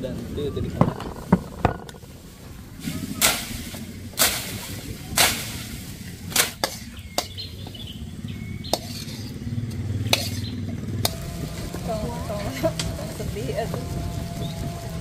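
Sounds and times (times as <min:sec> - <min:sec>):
blade chopping bamboo: 0:03.2 - 0:07.5, 0:08.8 - 0:09.3, 0:10.1 - 0:11.8.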